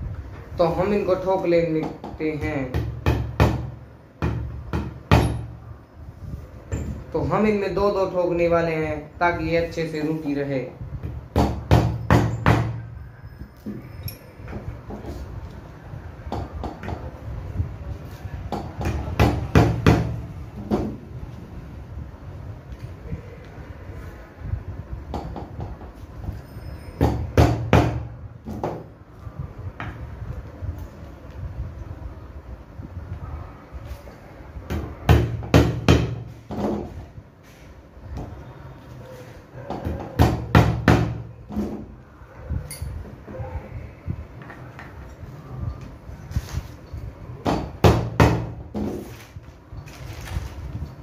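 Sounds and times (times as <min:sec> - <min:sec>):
hammer knocking nails into wood: 0:01.8 - 0:05.4, 0:18.5 - 0:21.0, 0:34.7 - 0:36.9.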